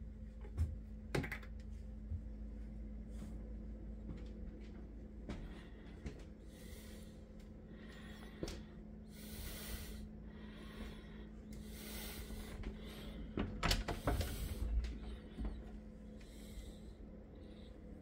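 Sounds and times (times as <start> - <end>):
low steady hum: 0.0 - 18.0
closet door opening: 13.4 - 14.7.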